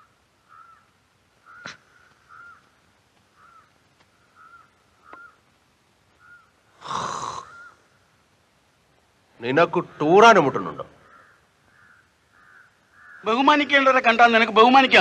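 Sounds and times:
crows cawing: 0:00.0 - 0:05.5, 0:06.1 - 0:08.2, 0:09.8 - 0:13.8.

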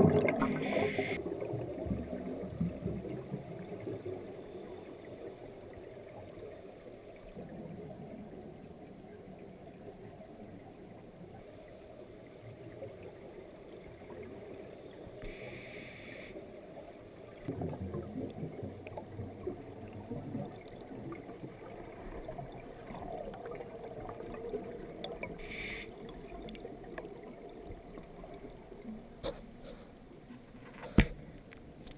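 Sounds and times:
exhaled bubbles rumbling: 0:00.0 - 0:04.4, 0:17.4 - 0:29.2
low underwater hiss: 0:00.0 - 0:31.9
diver inhaling through regulator: 0:00.5 - 0:01.2, 0:15.2 - 0:16.4, 0:25.4 - 0:26.0.

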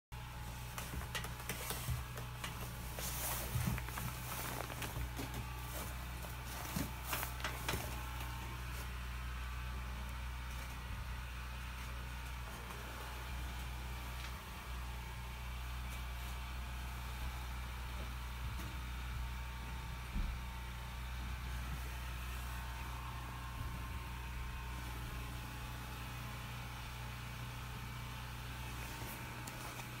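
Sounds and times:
steady low hum: 0:00.2 - 0:30.0
footsteps on wooden stairs: 0:00.6 - 0:08.5.

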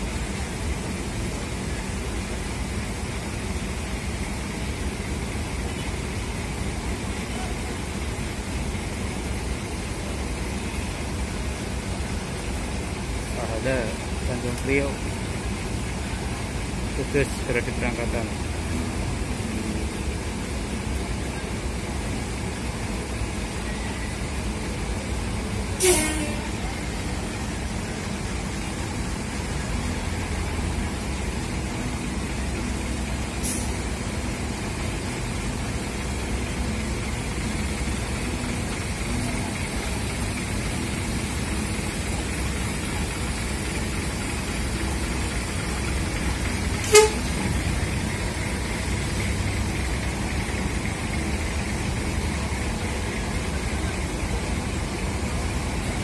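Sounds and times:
diesel bus engine running: 0:00.0 - 0:56.0
short horn toot: 0:25.8 - 0:26.6, 0:46.8 - 0:47.5.

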